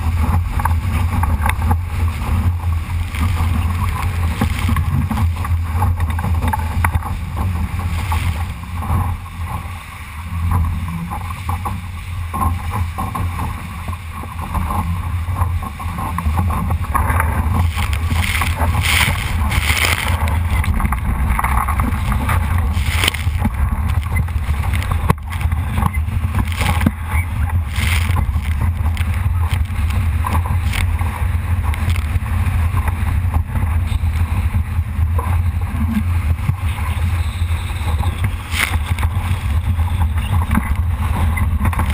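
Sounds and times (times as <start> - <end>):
water splashing against hull: 0.0 - 41.9
wind buffeting microphone: 0.0 - 41.9
splashing spray: 15.9 - 32.2.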